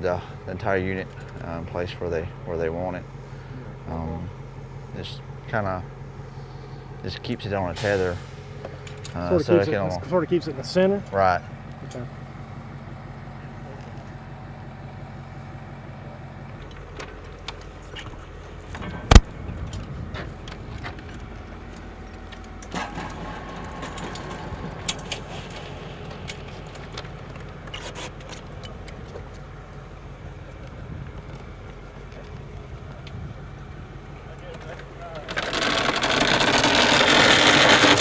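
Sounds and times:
low rumble: 18.7s - 27.6s.

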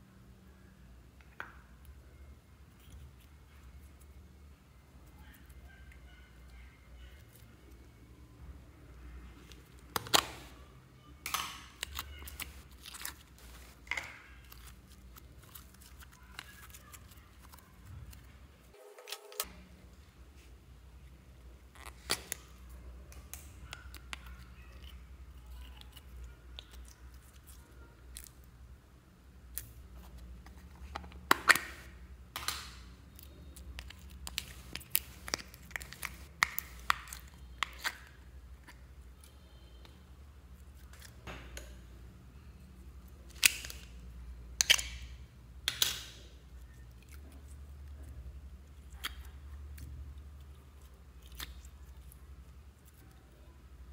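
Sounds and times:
slime squelching: 11.2s - 18.3s, 29.5s - 39.3s, 45.6s - 53.6s.

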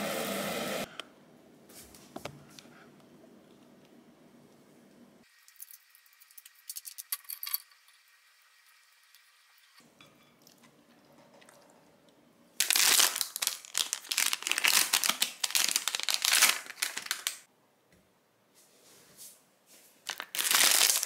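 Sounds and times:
plastic wrapper crinkling: 12.6s - 17.5s, 20.0s - 21.0s.

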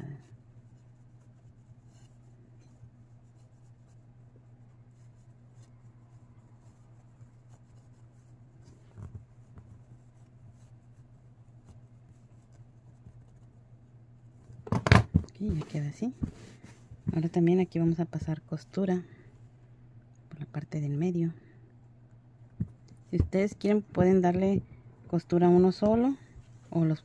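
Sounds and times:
fabric rustling: 0.0s - 14.7s
steady low hum: 0.0s - 27.0s.

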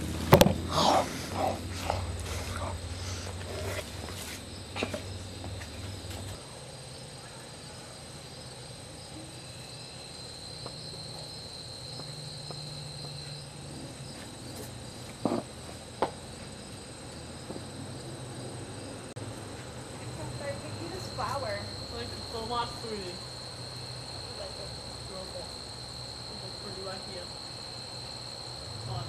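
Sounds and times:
insects chirring: 0.0s - 29.0s.

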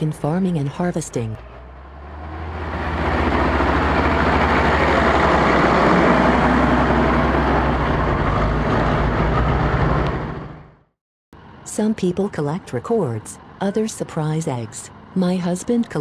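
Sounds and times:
tractor diesel engine running: 0.0s - 10.7s.

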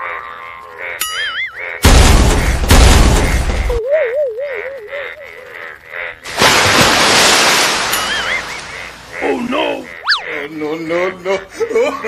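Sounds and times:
loud crash of noise: 1.8s - 3.7s.

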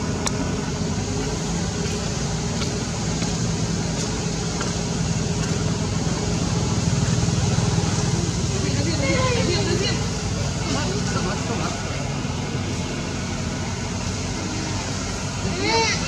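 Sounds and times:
constant hum: 0.0s - 16.0s
motor droning: 0.0s - 16.0s.

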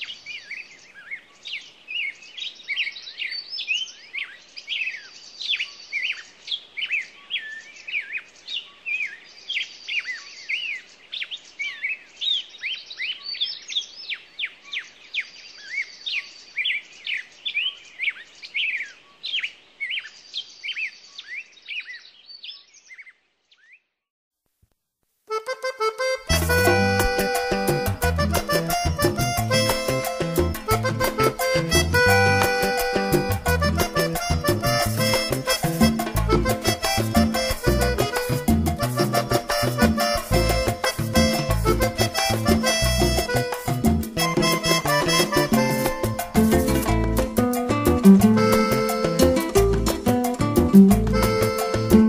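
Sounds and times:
birds chirping and singing: 0.0s - 23.9s
buzzy bird trill: 25.3s - 52.0s.

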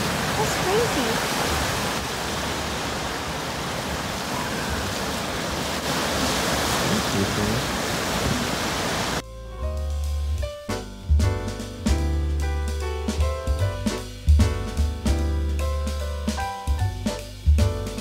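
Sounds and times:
ocean surf rushing: 0.0s - 9.2s
music with drums: 9.2s - 18.0s.

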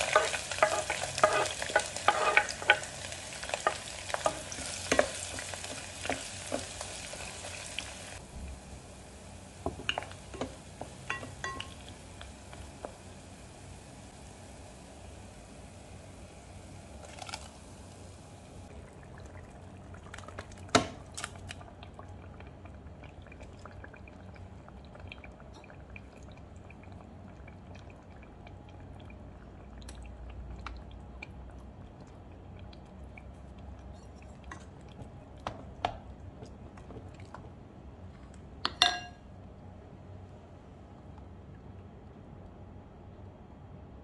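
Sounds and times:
frying crackles: 0.0s - 37.5s
utensils knocking against pot: 9.7s - 11.8s, 38.7s - 39.2s.

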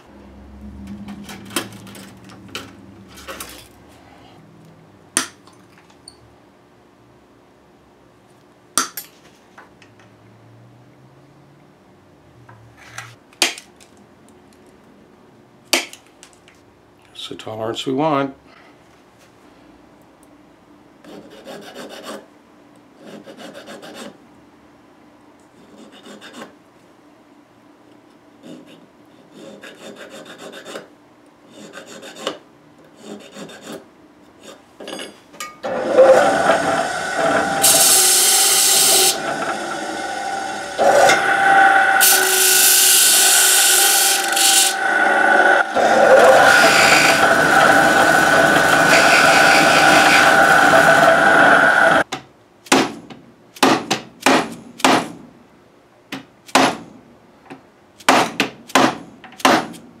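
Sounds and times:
file scraping metal wire: 21.0s - 22.2s, 23.0s - 24.2s, 25.6s - 26.5s, 28.4s - 34.6s, 35.9s - 52.0s
disc sander running: 35.6s - 52.0s.

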